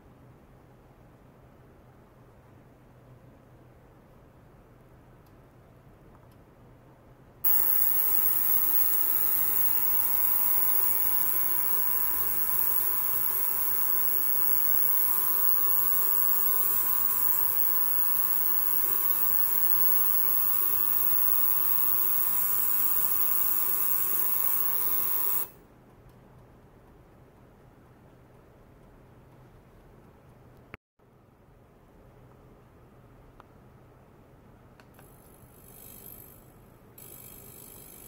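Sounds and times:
ultrasonic cleaner hissing and buzzing: 7.5s - 25.5s.

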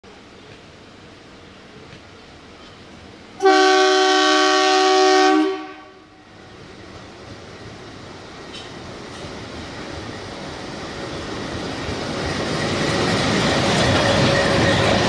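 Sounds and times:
locomotive horn blast: 3.4s - 6.2s
locomotive rumbling: 6.4s - 15.0s.

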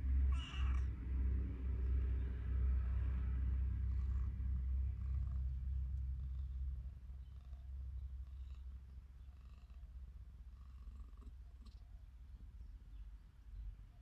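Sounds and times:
cat purring: 3.4s - 12.0s.

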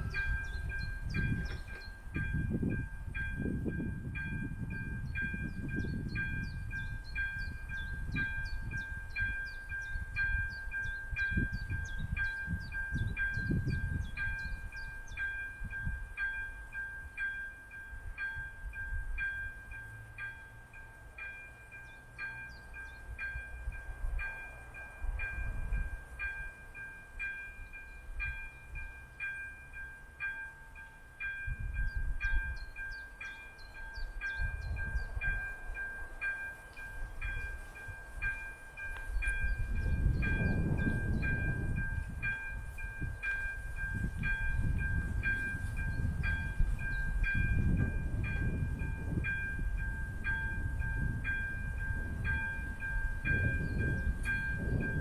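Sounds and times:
level-crossing warning bell: 0.0s - 55.0s
gusty low rumble: 38.9s - 55.0s.

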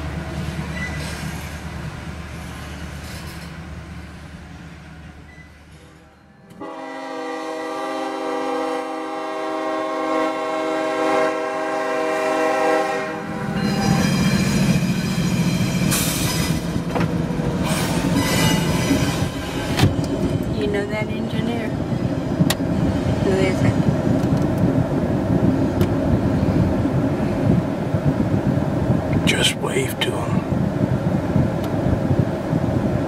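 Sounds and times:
train wheel noise: 0.0s - 6.8s, 10.4s - 33.0s
locomotive engine rumble: 0.0s - 7.4s, 11.6s - 33.0s
freight train cars rumbling past: 0.0s - 33.0s
locomotive air horn blast: 5.8s - 14.1s.

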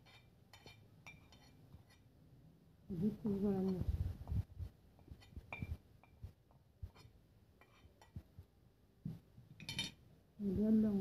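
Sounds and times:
spoon clinking on plate and bowl: 0.0s - 2.0s, 5.2s - 6.2s, 9.6s - 10.0s.

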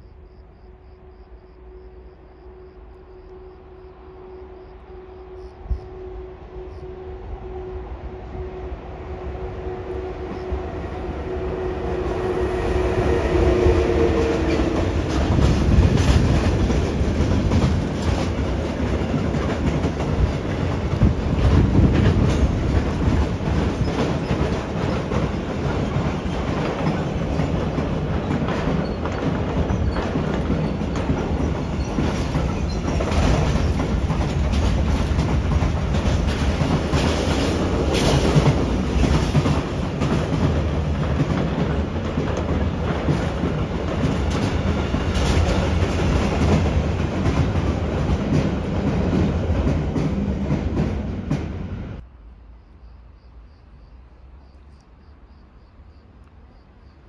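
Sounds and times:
train rumbling past: 0.0s - 57.0s
wheels clattering over rail joints: 14.4s - 51.4s.

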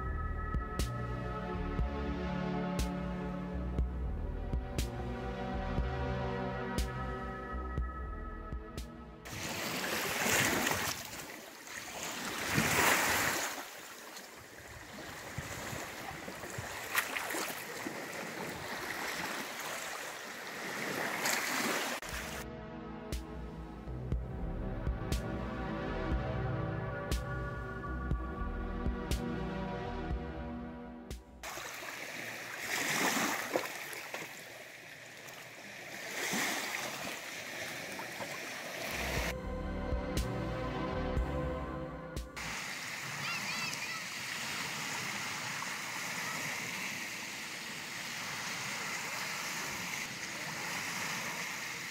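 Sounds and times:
lake waves splashing on rocks: 9.3s - 22.4s, 31.4s - 39.3s, 42.4s - 51.9s.

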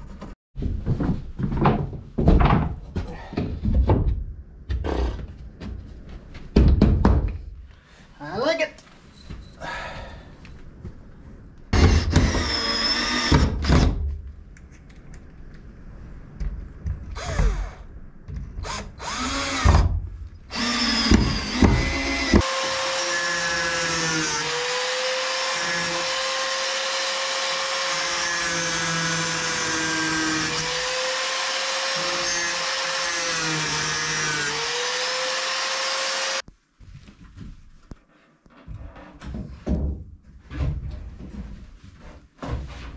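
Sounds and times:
cordless drill: 11.8s - 13.9s, 17.2s - 17.8s, 18.6s - 19.8s, 20.5s - 36.4s
power tool on plywood: 18.6s - 19.8s, 20.5s - 36.4s.

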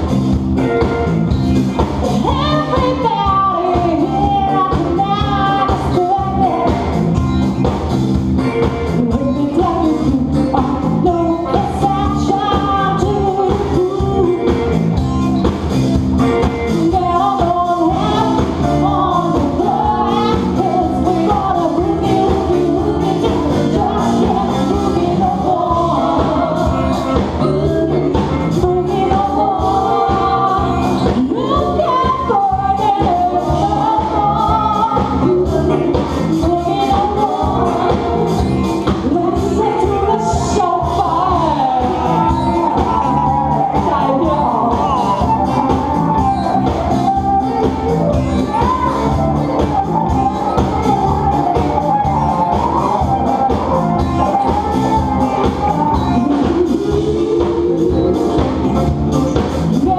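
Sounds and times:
drums keeping a steady beat: 0.0s - 59.9s
electric bass: 0.0s - 59.9s
keyboards: 0.0s - 59.9s
singers singing into microphones: 16.6s - 59.9s.

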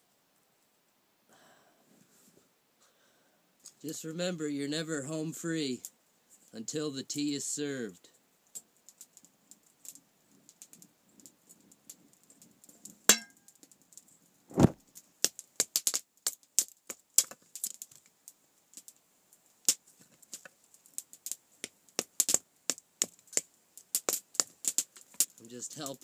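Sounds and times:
fire crackling and popping: 3.6s - 26.0s
dull thump: 14.5s - 14.8s.

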